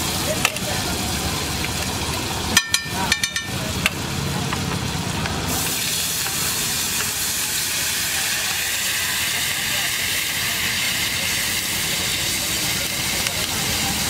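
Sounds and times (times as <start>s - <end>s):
water hissing into steam: 0.0s - 2.5s, 3.6s - 14.0s
butter sizzling on griddle: 0.0s - 14.0s
sharp metal clinks: 2.6s - 3.6s.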